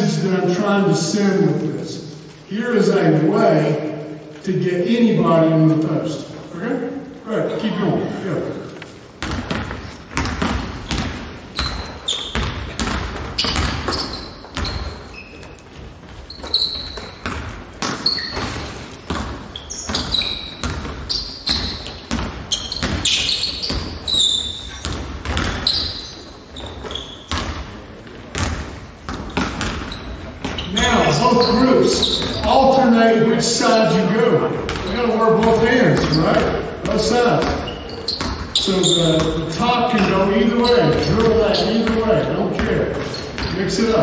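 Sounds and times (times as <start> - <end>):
sneaker squeaks: 8.5 - 44.0
basketball bouncing on hardwood floor: 9.2 - 15.4, 16.0 - 30.7, 34.7 - 39.4.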